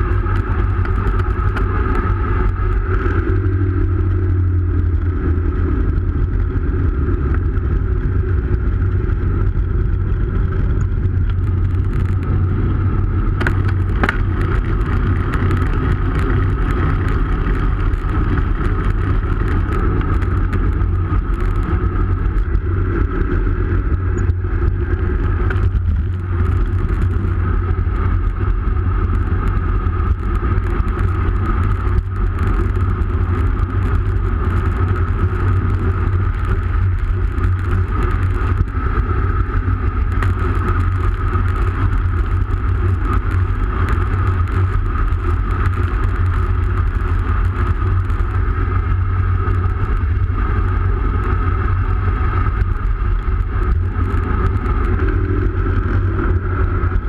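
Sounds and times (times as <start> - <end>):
bike tyres rolling on asphalt: 0.0 - 57.0
wind rumble on microphone: 0.0 - 57.0.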